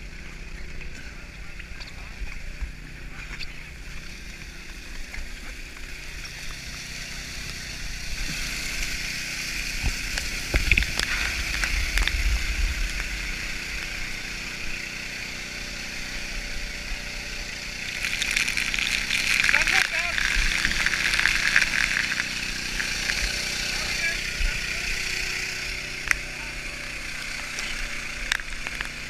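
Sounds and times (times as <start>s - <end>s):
water spraying hiss: 3.1s - 29.0s
wind rumbling on microphone: 9.7s - 14.7s.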